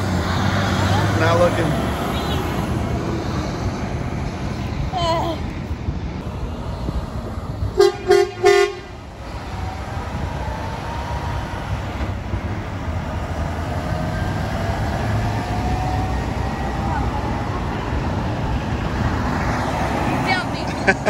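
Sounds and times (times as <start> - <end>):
road traffic: 0.0 - 21.0
truck pulling away whine: 0.0 - 21.0
truck horn toots: 7.8 - 9.0.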